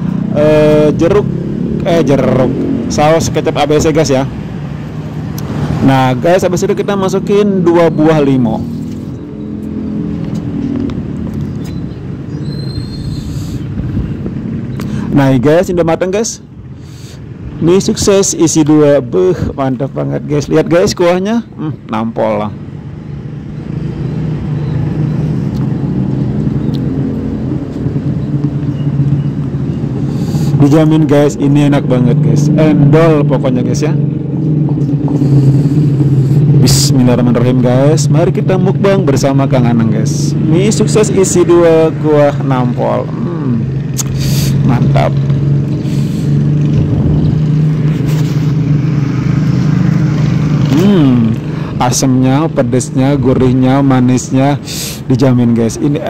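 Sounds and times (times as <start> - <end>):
low motor drone: 0.0 - 12.3, 22.8 - 53.6
steady low rumbling hum: 24.6 - 56.0.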